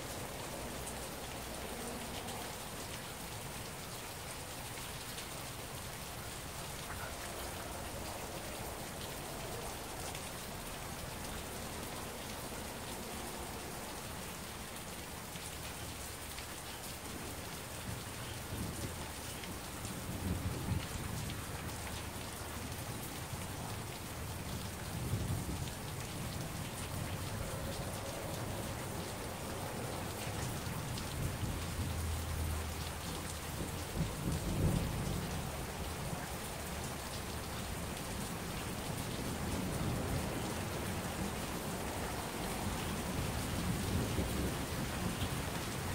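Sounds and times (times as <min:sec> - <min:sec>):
steady rain falling: 0:00.0 - 0:45.9.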